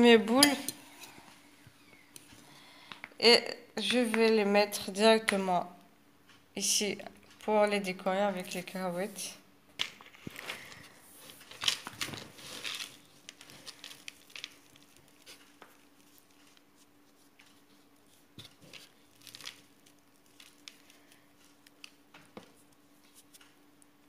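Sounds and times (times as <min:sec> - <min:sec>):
faint steady hum: 0:00.0 - 0:24.0
rustling and crunching of peanuts: 0:09.8 - 0:23.9.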